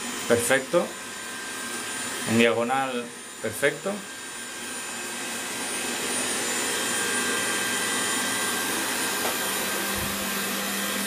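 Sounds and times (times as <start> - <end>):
robot vacuum cleaner whirring: 0.0 - 11.0.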